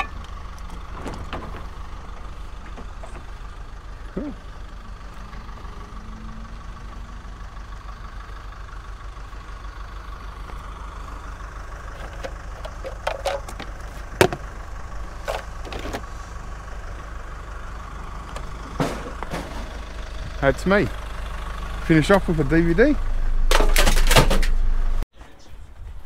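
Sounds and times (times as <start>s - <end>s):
car engine idling: 0.0s - 25.0s.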